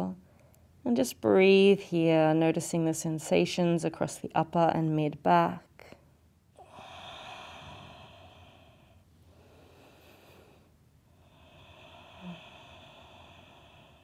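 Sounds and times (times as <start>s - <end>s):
woman breathing slowly: 5.9s - 14.0s.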